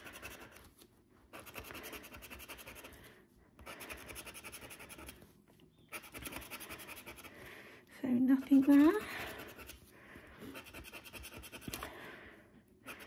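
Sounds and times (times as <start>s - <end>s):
scratcher scraping scratch card: 0.0s - 0.7s, 1.3s - 2.9s, 3.6s - 5.2s, 5.9s - 7.3s, 10.5s - 11.9s.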